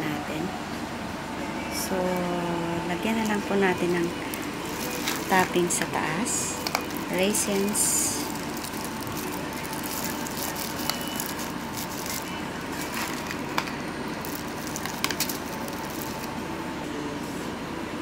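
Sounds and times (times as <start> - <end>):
steady background hum: 0.0 - 18.0
plastic bag crinkling: 3.1 - 16.4.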